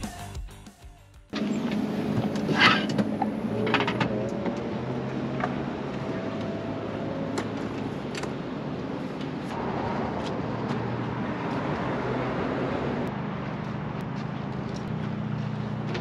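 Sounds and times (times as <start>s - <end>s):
low engine hum: 1.4s - 16.0s
vehicle passing: 1.6s - 16.0s.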